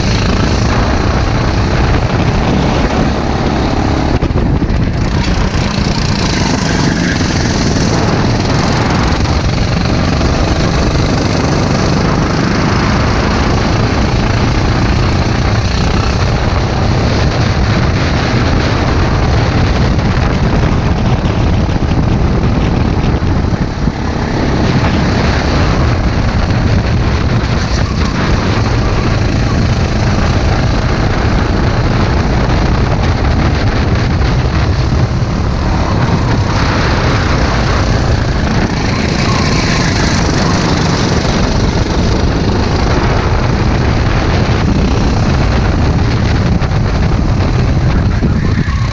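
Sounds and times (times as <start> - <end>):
kart engine running hard: 0.0 - 48.9
wind rush on microphone: 0.0 - 48.9.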